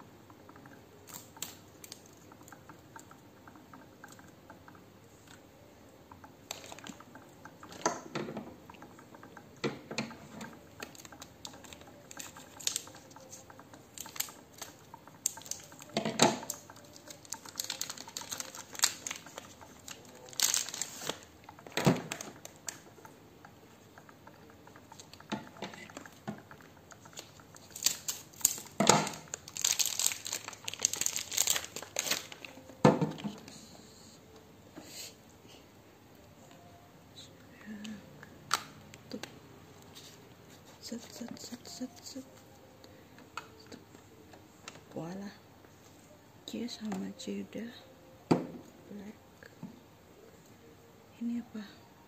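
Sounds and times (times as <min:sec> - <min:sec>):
plastic packaging crinkling: 0:06.5 - 0:08.1, 0:10.2 - 0:23.1, 0:24.2 - 0:33.5.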